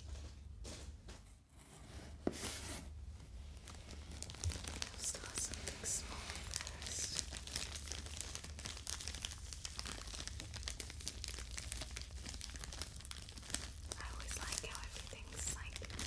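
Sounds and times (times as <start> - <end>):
plastic pouch crinkling: 3.6 - 16.0.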